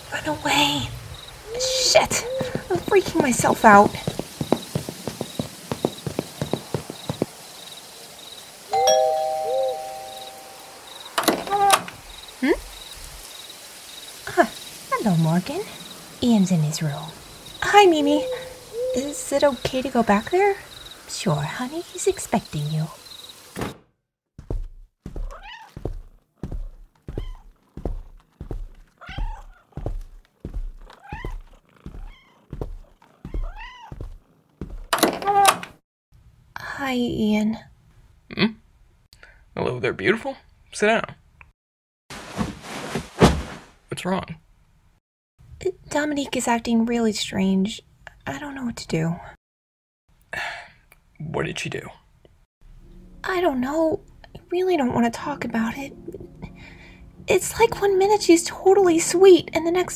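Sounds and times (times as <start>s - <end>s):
footsteps: 1.6s - 7.4s, 24.4s - 34.9s, 42.1s - 43.8s
two-tone doorbell chime: 8.8s - 10.8s
cat meowing: 25.3s - 25.7s, 27.1s - 27.4s, 29.0s - 29.6s, 31.0s - 32.5s, 33.2s - 34.0s.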